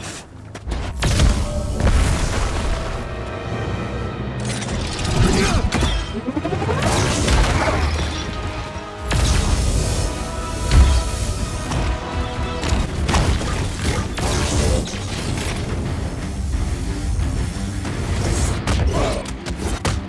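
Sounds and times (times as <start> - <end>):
film score music: 0.0 - 20.0
sweeping rising and falling effects: 6.1 - 6.9.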